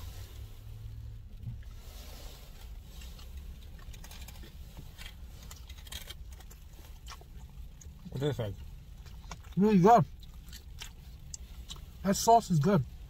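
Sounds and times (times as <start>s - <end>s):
food crackling and rustling: 0.0s - 12.2s
low rumble in car cabin: 0.0s - 13.0s
chewing: 2.5s - 12.0s.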